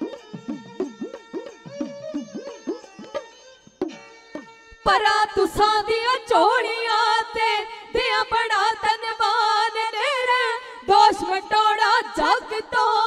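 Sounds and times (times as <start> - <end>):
hand drum strokes: 0.0 - 4.5
bowed string instrument: 0.0 - 8.9
women singing: 4.8 - 13.0.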